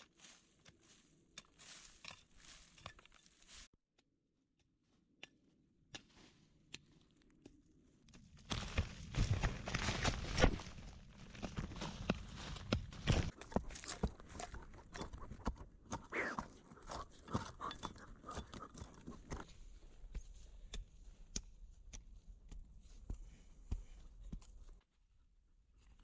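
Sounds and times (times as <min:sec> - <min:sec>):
hand tool scraping soil: 0:00.6 - 0:03.7, 0:08.5 - 0:24.7.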